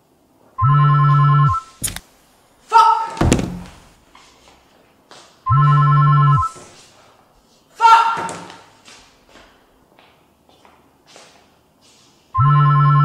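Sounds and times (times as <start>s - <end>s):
mobile phone ringing: 0.6s - 1.8s, 5.5s - 6.6s, 12.4s - 13.0s
sharp click: 1.8s - 2.1s
thunk: 3.2s - 3.8s.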